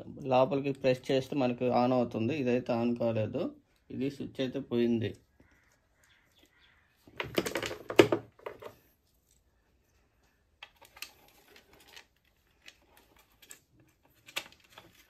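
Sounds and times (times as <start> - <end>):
plastic plates clattering: 7.1 - 8.8.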